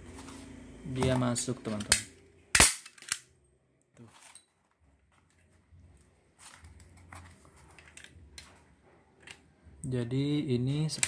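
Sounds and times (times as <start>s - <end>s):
objects handled on a table: 4.0s - 9.7s.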